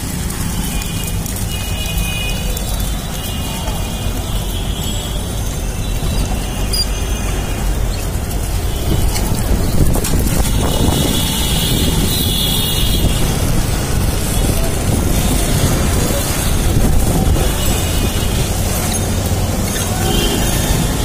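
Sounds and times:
street traffic: 0.0 - 21.0
wind buffeting microphone: 5.7 - 19.7.

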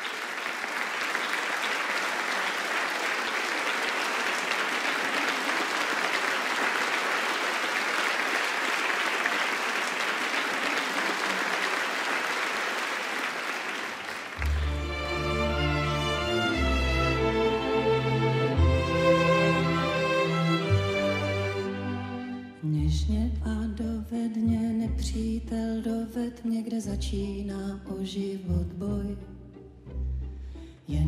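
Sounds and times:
audience applauding: 0.0 - 21.8
orchestra low held string notes: 14.4 - 26.2.

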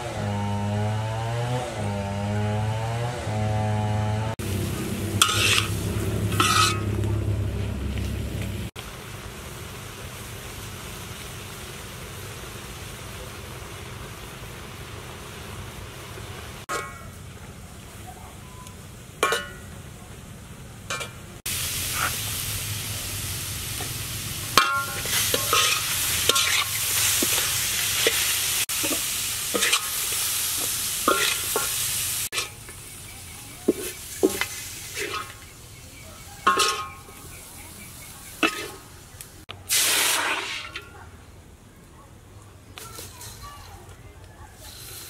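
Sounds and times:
spatula scraping wok: 1.7 - 8.7, 20.9 - 39.2, 40.0 - 41.0
pineapple sizzling in wok: 4.4 - 41.2, 42.7 - 45.0.

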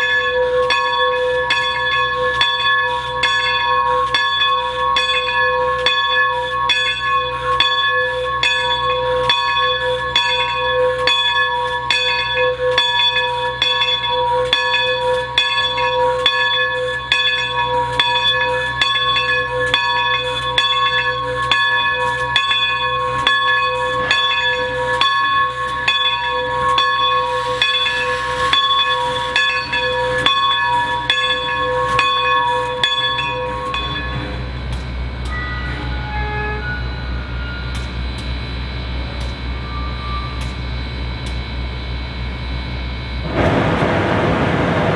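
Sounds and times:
locomotive bell ringing: 0.0 - 43.3
steam hissing: 26.5 - 30.2.

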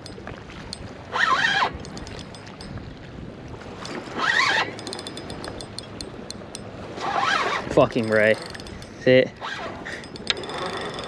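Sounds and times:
water lapping: 0.0 - 11.0
wind: 0.0 - 11.0
fishing reel clicking: 1.2 - 2.8, 3.8 - 11.0.

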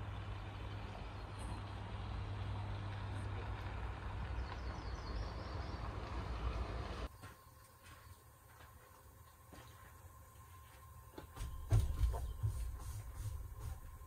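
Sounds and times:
engine idling hum: 0.0 - 7.1.

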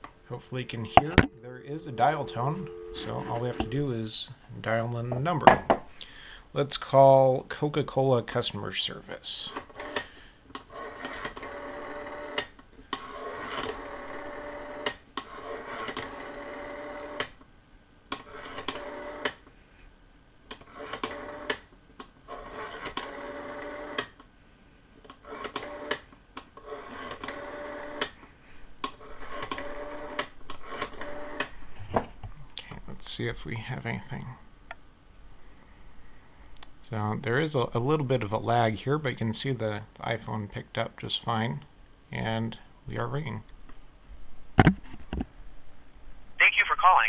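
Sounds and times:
rotary telephone dial whirring: 10.7 - 17.3, 18.2 - 19.4, 20.7 - 21.6, 22.3 - 24.1, 25.2 - 28.1, 29.0 - 31.5.

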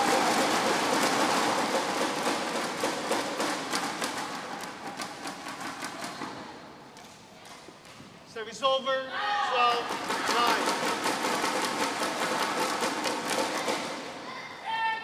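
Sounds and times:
crowd cheering and clapping: 0.0 - 6.2, 9.6 - 14.2.

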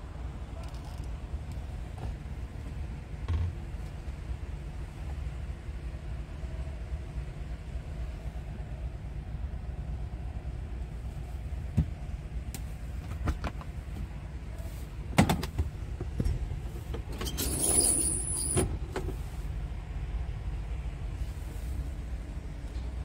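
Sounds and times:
diesel engine idling: 18.1 - 23.0.

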